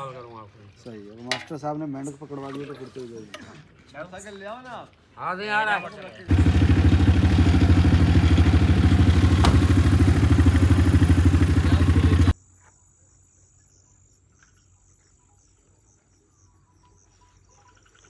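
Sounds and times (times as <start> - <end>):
vehicle engine running: 6.3 - 12.4
crickets chirping: 9.8 - 18.0.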